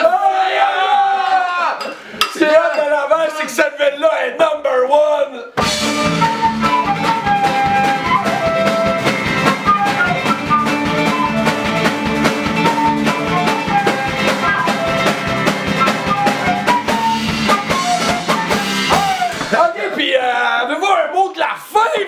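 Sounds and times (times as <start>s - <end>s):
electric bass: 5.6s - 19.4s
acoustic guitars: 5.6s - 19.6s
flute melody: 5.6s - 19.6s
drum kit beat: 5.6s - 20.0s.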